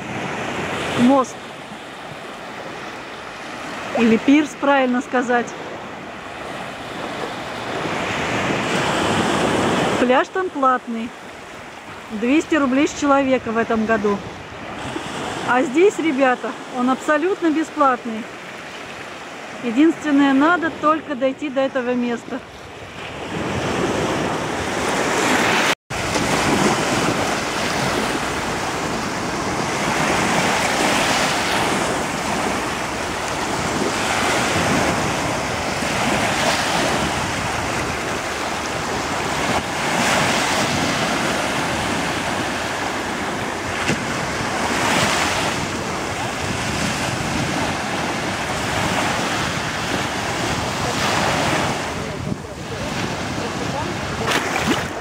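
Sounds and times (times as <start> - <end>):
waves washing up a beach: 0.0 - 55.0
wind buffeting microphone: 22.2 - 55.0.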